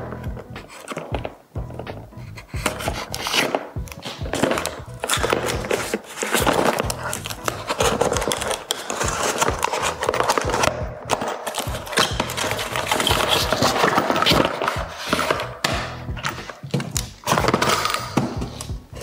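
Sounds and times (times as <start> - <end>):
background music: 0.0 - 19.0
cardboard box scraping and crinkling: 2.4 - 15.5.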